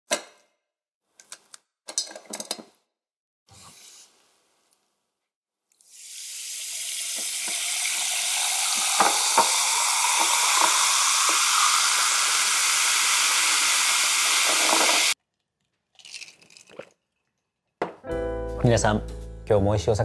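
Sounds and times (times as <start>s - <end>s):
soda water fizzing: 5.8s - 15.2s, 16.0s - 17.5s.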